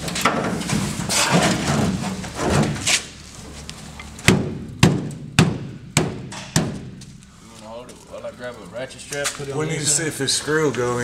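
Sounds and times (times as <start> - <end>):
sharp knocks on sheet steel: 4.2 - 7.0.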